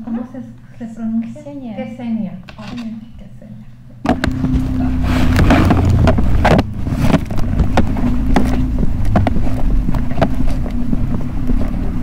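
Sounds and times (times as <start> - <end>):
motorcycle engine running: 4.1 - 12.0
wind buffeting microphone: 4.1 - 12.0.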